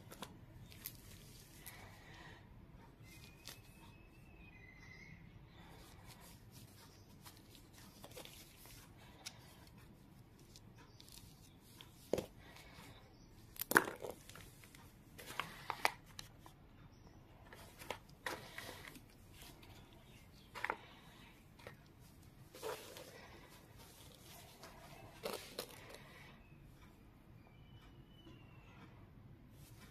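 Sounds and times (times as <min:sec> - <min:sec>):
plastic buttons rustling: 0:17.5 - 0:26.1.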